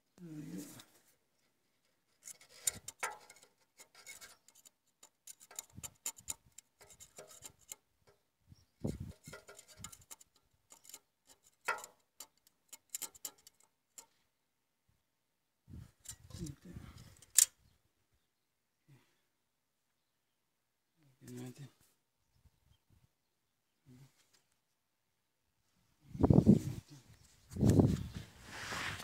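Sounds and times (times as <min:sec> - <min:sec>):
metal hand tools clicking and scraping: 0:02.1 - 0:08.2, 0:08.9 - 0:14.1, 0:17.0 - 0:17.5.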